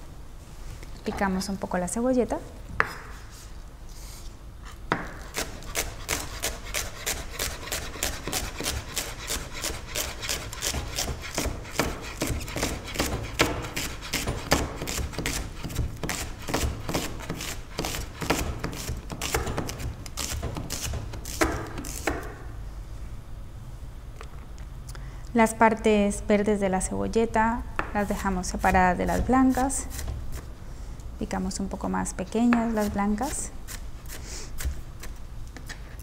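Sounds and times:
knife chopping on wooden board: 4.9s - 22.4s.

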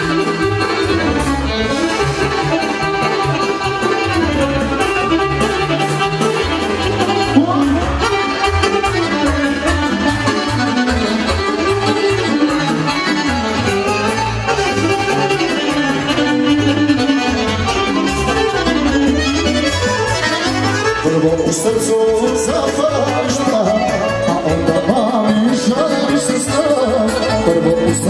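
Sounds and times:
accordion-led folk dance music: 0.0s - 28.0s.

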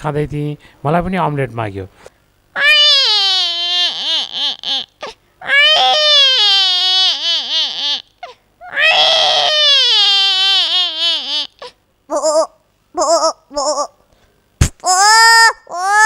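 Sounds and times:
woman imitating child crying: 12.1s - 13.9s, 14.8s - 16.0s.

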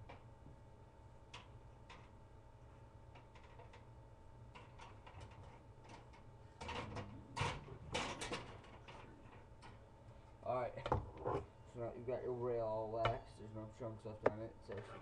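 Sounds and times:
faint ticks and clicks: 1.3s - 2.2s
scrapes and knocks: 10.8s - 11.5s.

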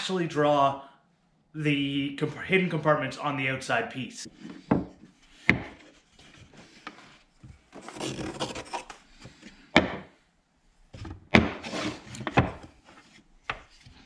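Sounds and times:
wooden boards knocking: 4.7s - 5.8s, 9.8s - 10.1s, 11.3s - 11.6s.

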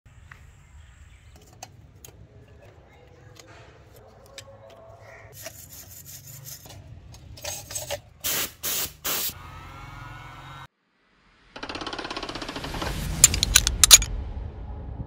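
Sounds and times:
hissing spray bursts: 8.2s - 9.4s.

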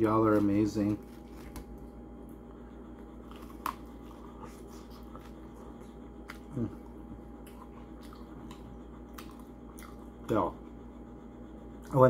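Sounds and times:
faint steady hum: 0.0s - 12.0s
man humming mm: 6.4s - 6.9s.

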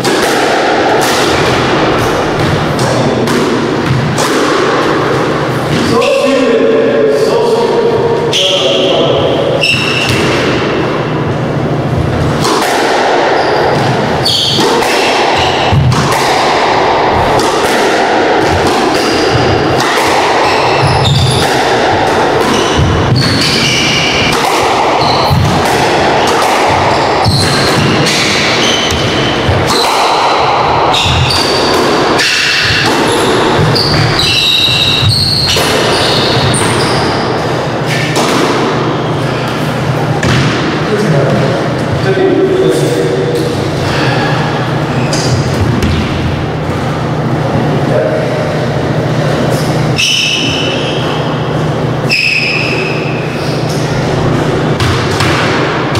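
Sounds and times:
shoes squeaking on hardwood floor: 33.0s - 37.3s.

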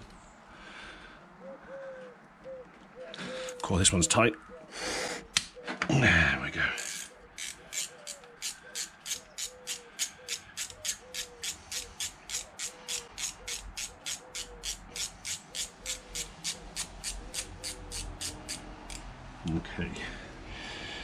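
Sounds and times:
socket ratchet clicking: 6.8s - 19.0s.

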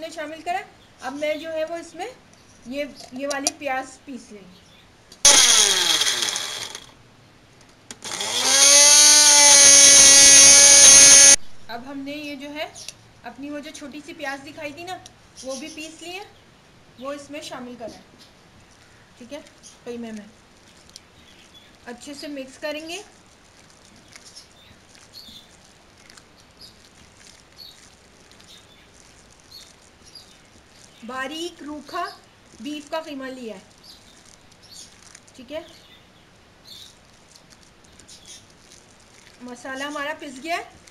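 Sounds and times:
electric grinder motor: 5.3s - 6.9s, 7.9s - 11.4s
hands kneading minced meat: 18.6s - 35.8s, 36.8s - 40.9s.

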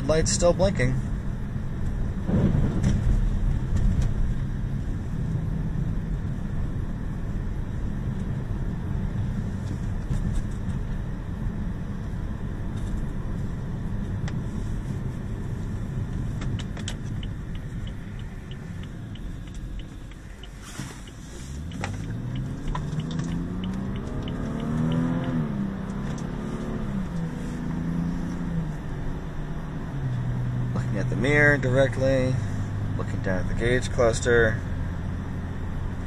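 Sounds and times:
car engine and road rumble: 0.0s - 36.0s
turn signal ticking: 13.9s - 31.5s.

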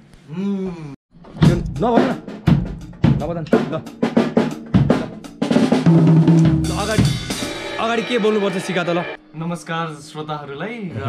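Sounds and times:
drum kit hits: 1.2s - 9.2s
drum roll: 1.2s - 9.2s.

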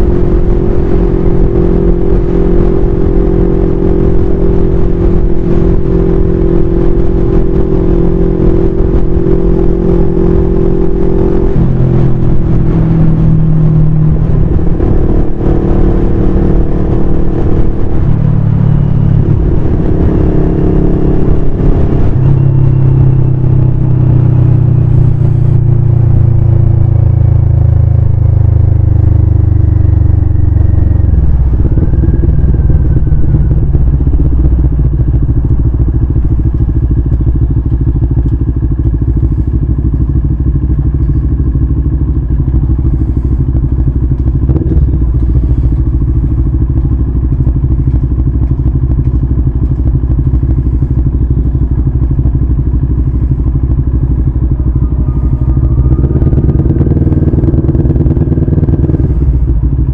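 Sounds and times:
motorcycle engine idling: 16.6s - 59.9s.

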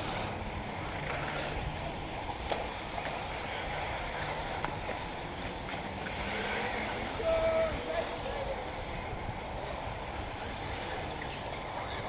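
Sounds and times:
wind on microphone: 3.3s - 12.0s.

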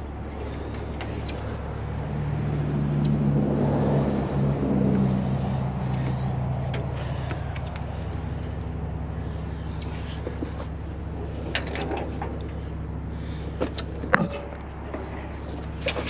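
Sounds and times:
diesel truck engine idling: 0.0s - 16.0s.

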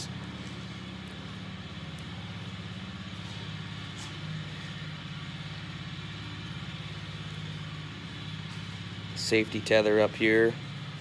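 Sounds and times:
snowmobile engine idling: 0.0s - 11.0s.

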